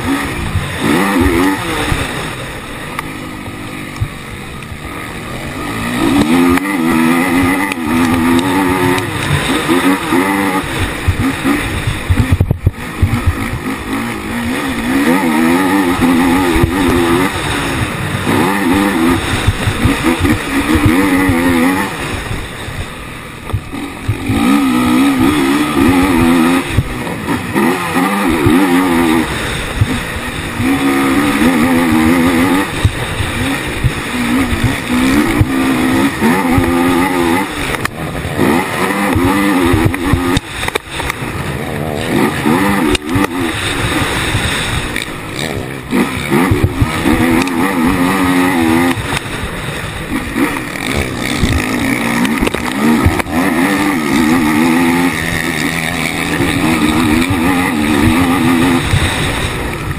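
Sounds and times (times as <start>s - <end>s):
quad engine revving: 0.0s - 59.9s.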